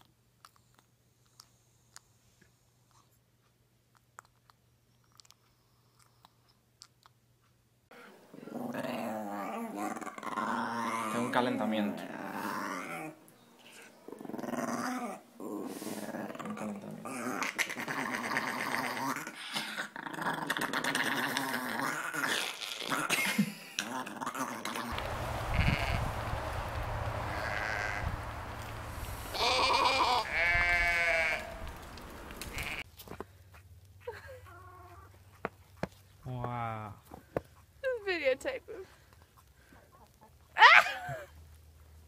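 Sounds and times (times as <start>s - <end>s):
puppy growling: 8.4s - 13.2s, 14.1s - 23.1s
goat bleating: 27.4s - 28.0s, 29.3s - 32.8s.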